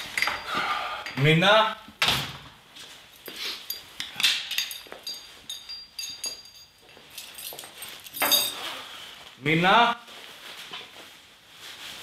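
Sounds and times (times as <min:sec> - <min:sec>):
faint metallic ringing: 0:04.6 - 0:08.6.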